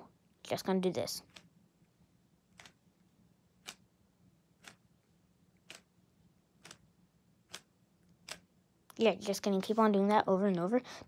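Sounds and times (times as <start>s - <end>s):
puzzle cube turning clicks: 1.2s - 1.6s, 2.4s - 2.9s, 3.6s - 3.9s, 4.6s - 8.6s.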